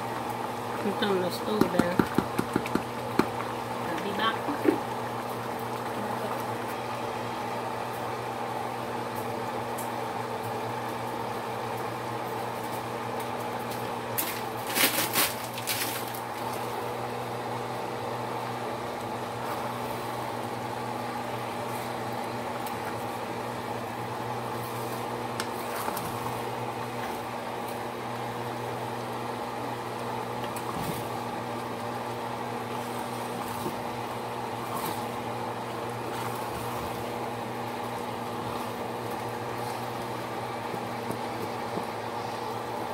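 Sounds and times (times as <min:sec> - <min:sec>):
rice simmering in a pot: 0:00.0 - 0:42.9.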